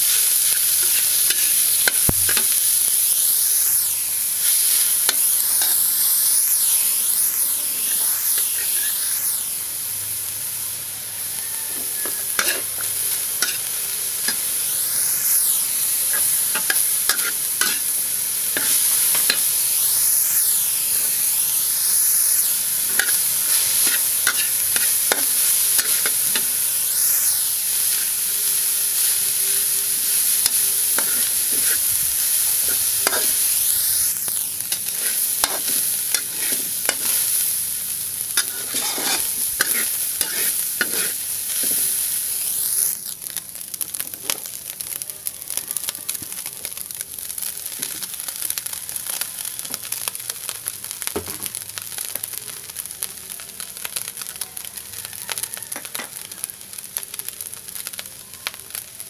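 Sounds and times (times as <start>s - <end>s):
food sizzling in a wok: 0.0s - 59.0s
metal spatula scraping pan: 12.0s - 12.8s, 34.8s - 37.2s, 38.4s - 41.9s.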